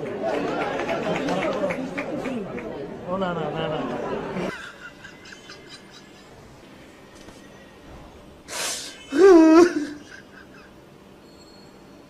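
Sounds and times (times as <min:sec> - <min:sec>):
man sobbing: 0:08.7 - 0:10.7.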